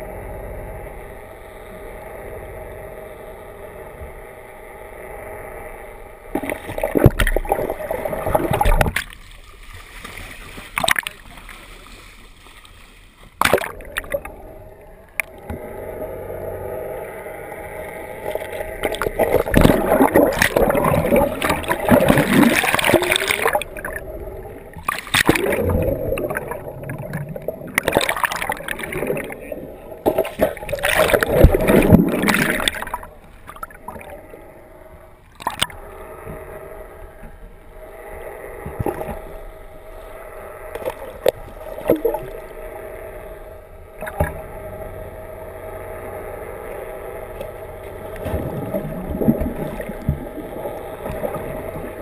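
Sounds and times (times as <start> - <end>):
seawater rushing and splashing: 6.3 - 14.4, 18.1 - 34.2, 47.8 - 52.0.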